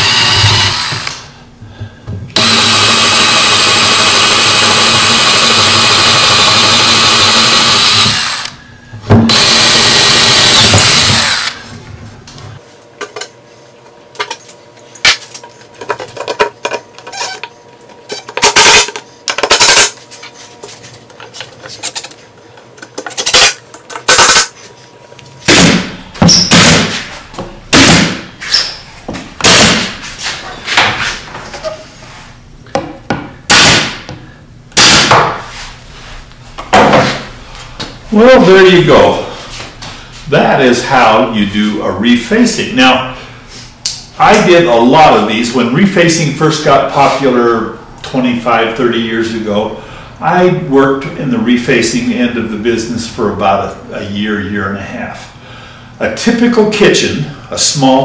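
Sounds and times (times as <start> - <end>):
cordless drill drilling: 0.0 - 1.2, 2.4 - 8.6, 9.3 - 11.6
pneumatic nailer shots: 0.0 - 1.3, 2.4 - 8.6, 9.2 - 11.6, 18.4 - 18.9, 23.2 - 24.5, 25.5 - 27.1, 27.7 - 28.6, 29.4 - 30.0, 33.5 - 34.1, 34.8 - 35.4.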